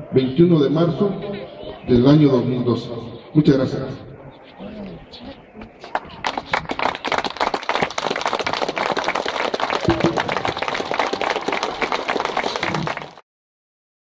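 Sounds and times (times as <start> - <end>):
crowd applauding: 5.8 - 13.2.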